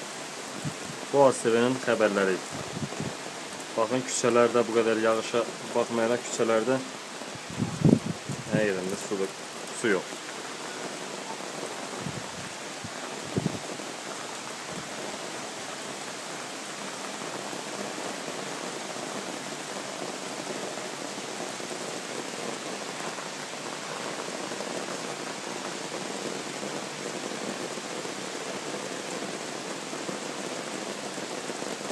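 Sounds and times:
heavy rain falling: 0:00.0 - 0:31.9.

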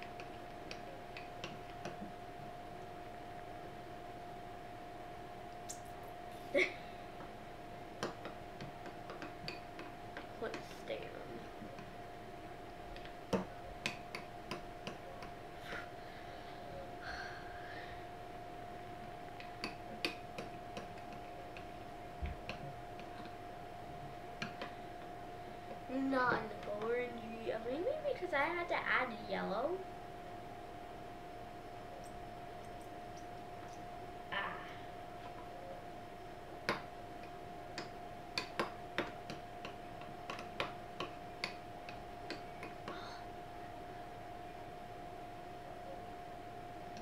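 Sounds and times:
faint hum: 0:00.0 - 0:47.0.

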